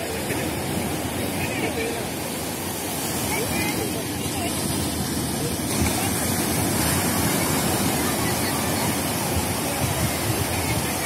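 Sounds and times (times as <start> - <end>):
waves breaking on beach: 0.0 - 11.0.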